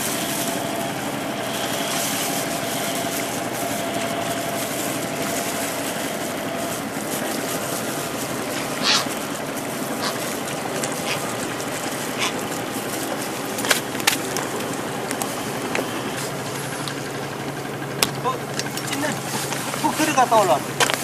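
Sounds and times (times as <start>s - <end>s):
wind: 0.0s - 21.0s.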